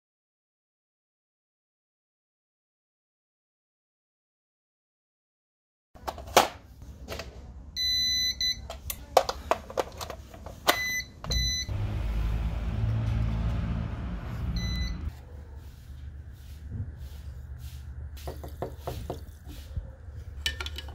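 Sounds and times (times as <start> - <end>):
plugs and cords clicking: 8.6 - 11.4
electronic beeping: 10.7 - 11.8, 14.6 - 15.1.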